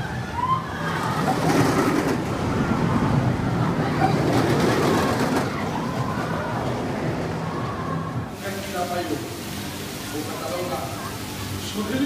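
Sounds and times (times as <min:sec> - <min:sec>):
roller coaster wheels rumbling on rails: 0:00.0 - 0:09.0.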